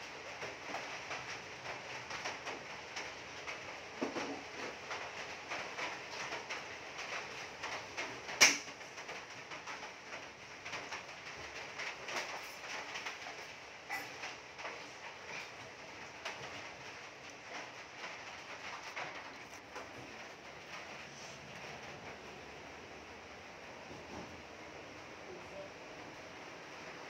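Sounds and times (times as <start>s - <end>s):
heavy rain pouring: 0.0s - 27.0s.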